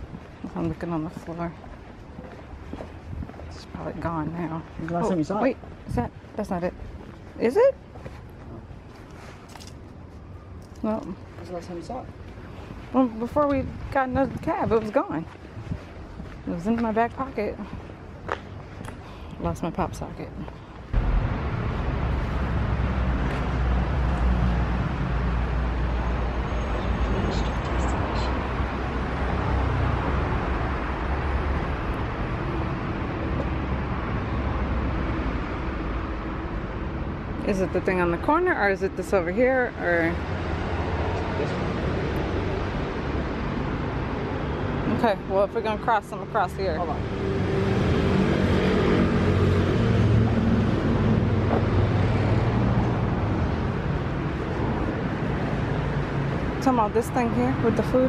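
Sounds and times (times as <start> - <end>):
low rumble of traffic: 0.0 - 58.0
vehicle engine running: 21.0 - 24.0.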